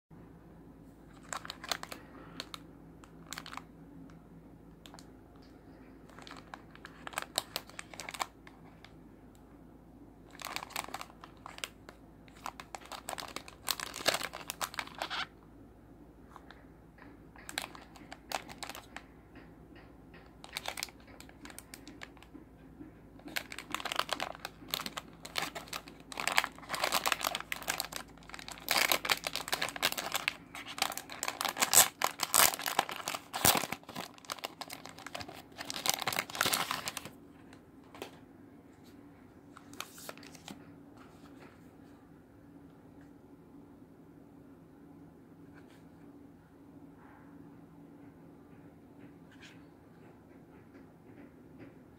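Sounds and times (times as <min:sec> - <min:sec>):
plastic packaging crinkling: 0:01.1 - 0:03.7, 0:06.0 - 0:08.9, 0:10.3 - 0:15.3, 0:17.4 - 0:19.1, 0:20.1 - 0:22.4, 0:23.2 - 0:37.2, 0:39.6 - 0:40.6.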